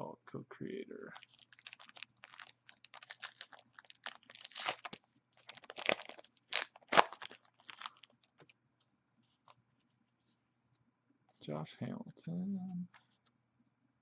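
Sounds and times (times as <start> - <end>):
wrapper tearing and crinkling: 1.2 - 8.2.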